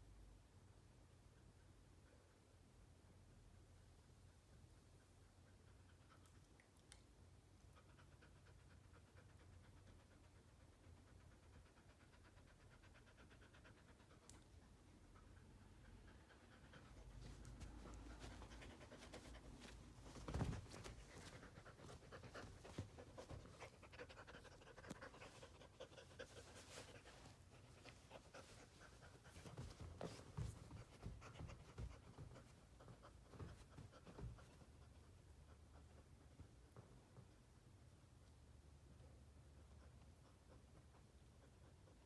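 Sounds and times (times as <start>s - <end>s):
dog panting rapidly: 7.7s - 36.9s
soft rustling and clicks: 17.0s - 35.1s.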